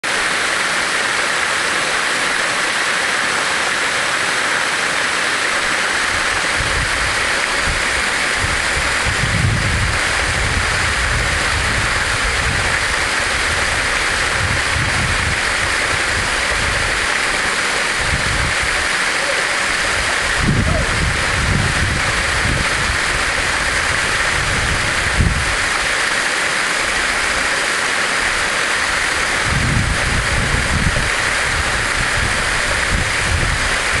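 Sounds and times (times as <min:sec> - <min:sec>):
waterfall rushing: 0:00.0 - 0:34.0
low rumbles on microphone: 0:06.5 - 0:18.9, 0:19.8 - 0:25.8, 0:29.2 - 0:34.0.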